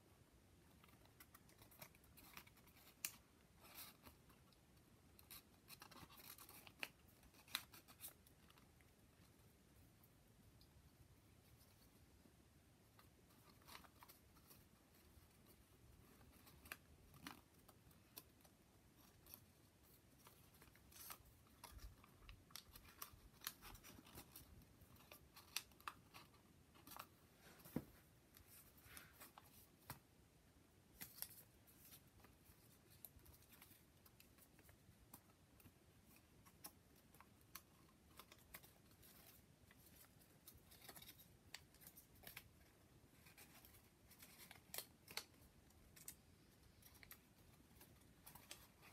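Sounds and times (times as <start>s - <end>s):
paper rustling and clicking: 12.9s - 30.1s, 30.9s - 48.9s.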